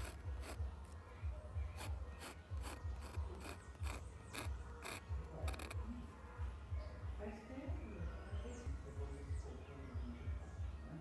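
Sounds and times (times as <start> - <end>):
pen nib scratching on paper: 0.0 - 1.0, 1.7 - 5.8.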